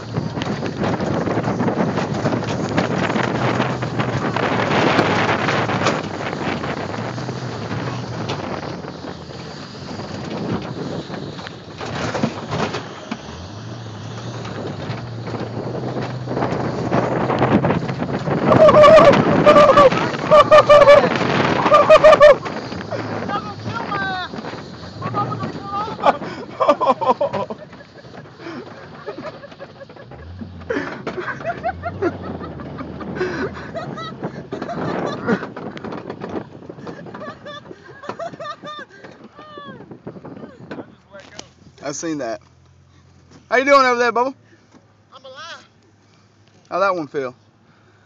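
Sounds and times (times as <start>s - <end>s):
wind buffeting microphone: 0.0s - 42.4s
vehicle engine humming: 0.0s - 48.0s.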